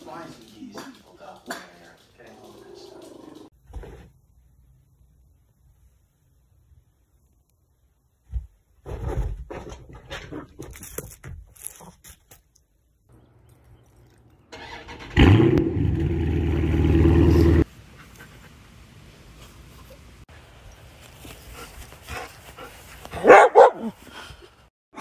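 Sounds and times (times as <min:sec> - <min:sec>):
scuffling and knocking: 0:08.2 - 0:11.6.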